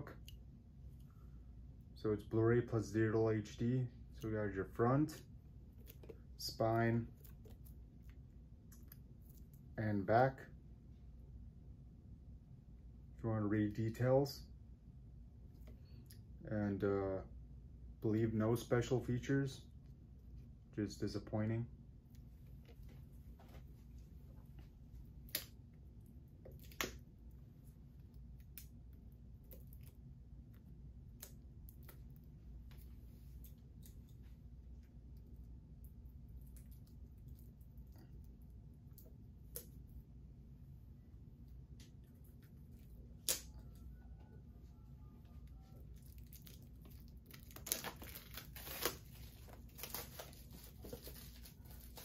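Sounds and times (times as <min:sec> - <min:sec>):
low room hum: 0:00.0 - 0:52.0
shrink wrap tearing and crinkling: 0:45.9 - 0:52.0.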